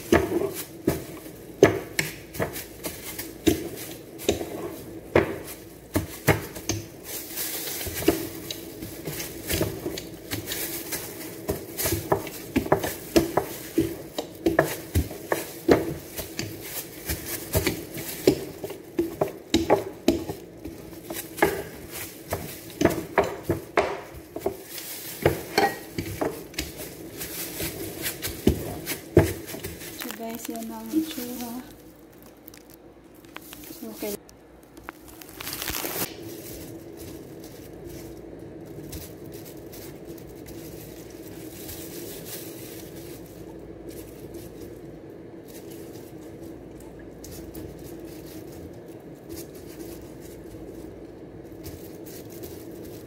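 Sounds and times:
dough knocking on table: 0.0 - 6.9, 11.4 - 29.9.

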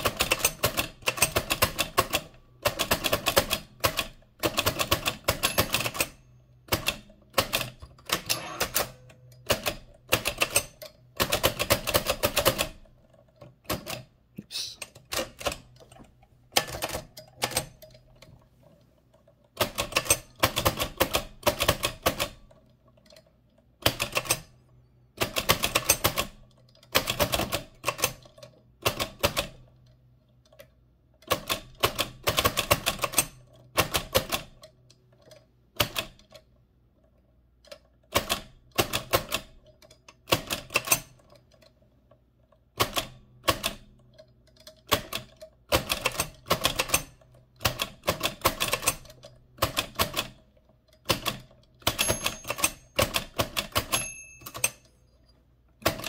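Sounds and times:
typewriter clacking: 0.0 - 12.9, 19.6 - 22.4, 44.7 - 50.4, 51.0 - 54.9, 55.8 - 56.0.

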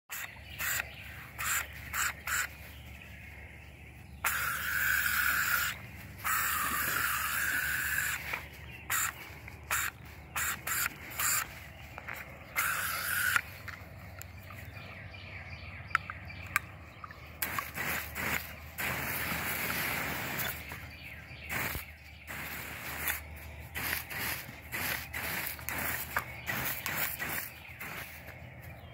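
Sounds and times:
hose water jet hissing: 0.1 - 2.7, 4.2 - 13.8, 17.4 - 28.4.

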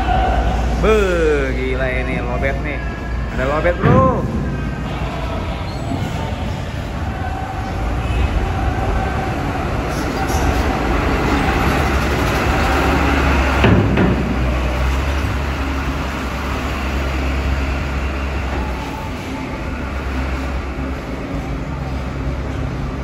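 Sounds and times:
diesel truck engine running: 10.6 - 23.0.

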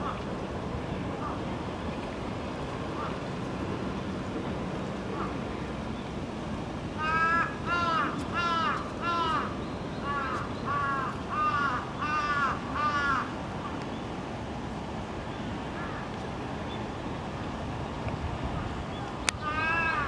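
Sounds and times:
crow cawing: 7.0 - 13.3, 19.4 - 20.0.

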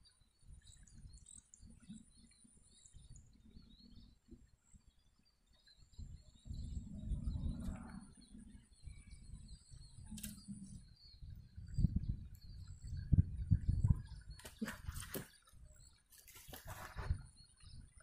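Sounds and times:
faint bird chirps: 0.0 - 18.0
wind buffeting microphone: 5.8 - 15.9, 16.5 - 18.0
sharp click: 10.1 - 10.5.

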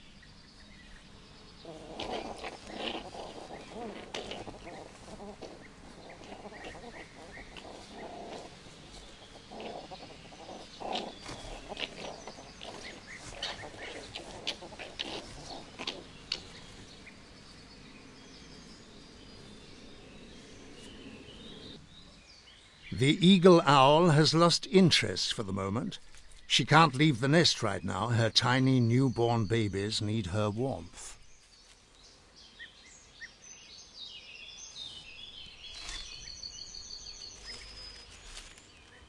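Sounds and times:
animals scuffling: 1.6 - 17.8, 34.7 - 39.0
fox cubs yelping and chattering: 1.6 - 22.2, 34.8 - 39.0.

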